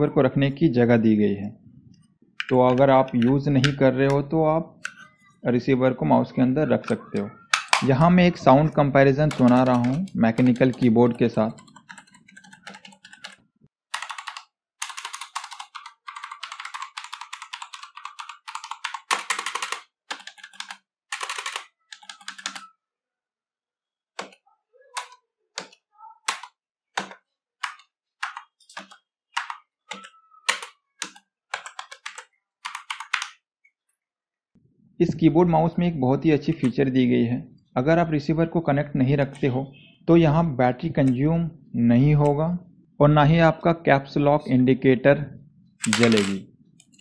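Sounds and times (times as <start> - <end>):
keyboard typing: 2.0 - 5.2, 6.8 - 22.8, 24.2 - 33.4, 45.8 - 47.0.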